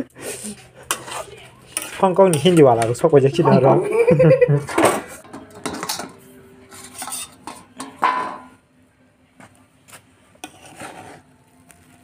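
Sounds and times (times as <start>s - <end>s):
metal lid clanking and scraping: 0.9s - 3.2s, 4.7s - 8.6s.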